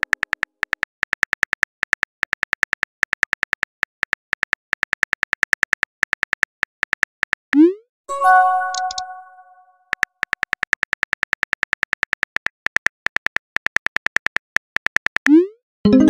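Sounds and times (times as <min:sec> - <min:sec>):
phone keyboard typing clicks: 0:08.6 - 0:09.2.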